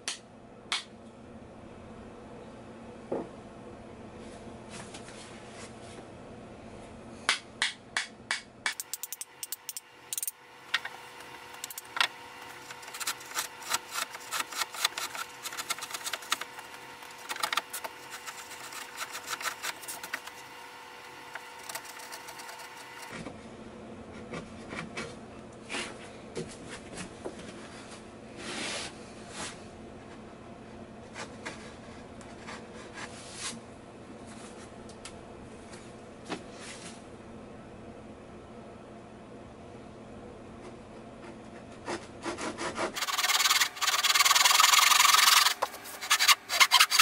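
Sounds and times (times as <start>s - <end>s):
rubbing sound: 12.6s - 20.4s, 41.9s - 47.0s.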